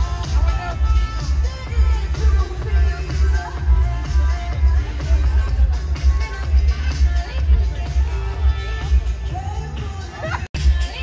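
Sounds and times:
music with heavy bass line: 0.0s - 11.0s.

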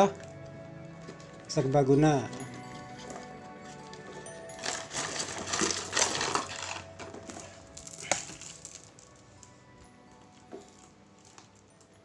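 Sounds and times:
packaging rustling: 1.0s - 9.6s.

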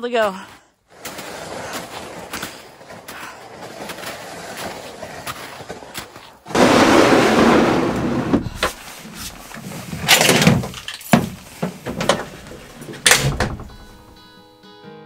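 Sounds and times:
gear scraping across truck bed: 0.9s - 10.8s
knocks and thumps on truck bed: 6.5s - 8.8s, 10.0s - 14.1s.

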